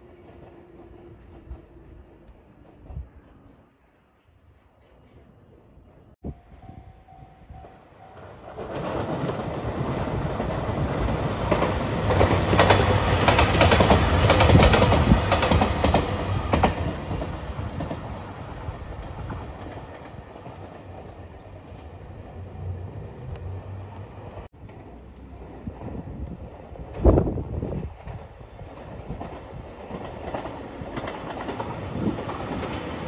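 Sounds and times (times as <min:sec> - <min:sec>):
train wheels clacking over rail joints: 0:08.2 - 0:18.0.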